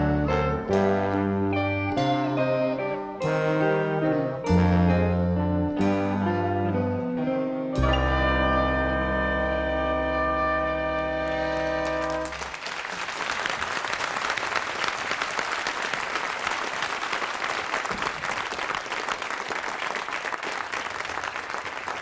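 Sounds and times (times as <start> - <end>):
big band brass chord: 0.0 - 12.5
audience applause: 11.0 - 22.0.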